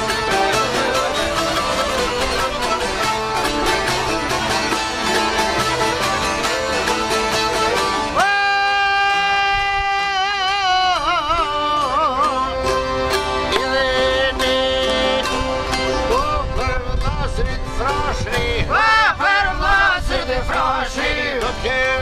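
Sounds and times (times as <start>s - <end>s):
accordion: 0.0s - 22.0s
plucked lute strings: 0.0s - 22.0s
man singing long high note: 8.1s - 12.9s.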